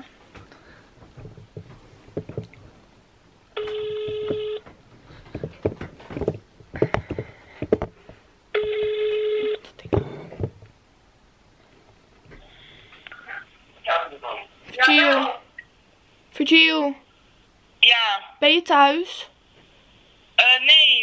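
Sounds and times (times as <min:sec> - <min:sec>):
phone handling knocks and clicks: 0:03.6 - 0:04.6
telephone ringback beeps: 0:03.6 - 0:04.6, 0:08.6 - 0:09.6.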